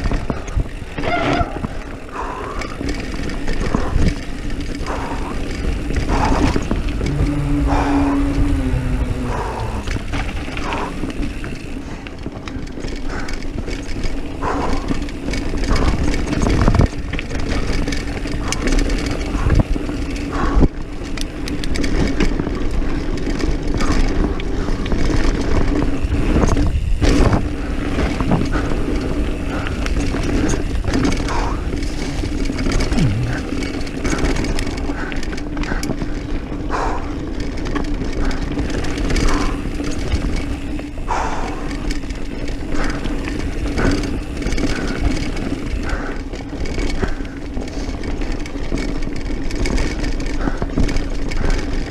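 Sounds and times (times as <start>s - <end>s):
bike rattling and knocking: 0.0s - 51.9s
tyres rolling on dirt: 0.0s - 51.9s
wind rushing over microphone: 3.5s - 12.0s
steady hum: 6.1s - 11.2s, 32.9s - 33.8s.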